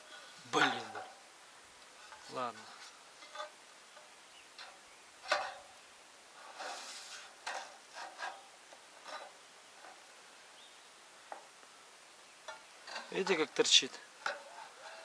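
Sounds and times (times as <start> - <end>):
metal-on-metal scrape: 2.0 - 3.6, 4.6 - 5.7, 6.4 - 10.1, 12.5 - 15.0.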